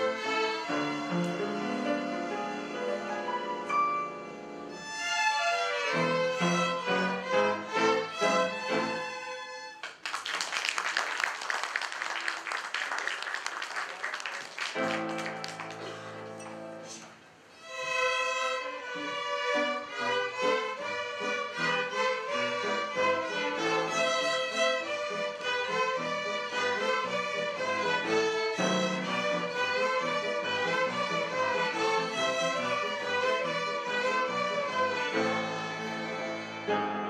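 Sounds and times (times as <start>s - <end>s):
piano accompaniment: 0.0s - 9.7s, 14.7s - 17.2s, 18.3s - 37.0s
violins playing a melody: 0.0s - 10.0s, 17.5s - 37.0s.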